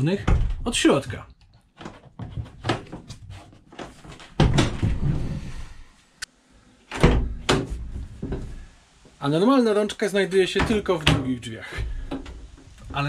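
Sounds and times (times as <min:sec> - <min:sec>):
heavy door thuds: 0:00.2 - 0:00.9, 0:04.3 - 0:05.2, 0:06.9 - 0:08.6.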